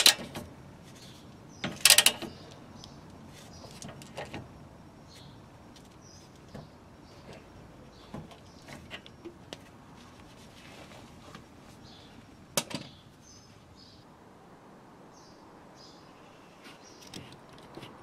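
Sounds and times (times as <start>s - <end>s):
hand tools clicking on metal: 1.8s - 2.3s.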